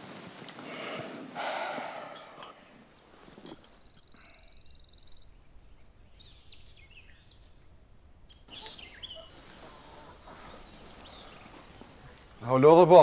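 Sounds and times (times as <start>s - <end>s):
small bird chirps: 3.7s - 9.4s.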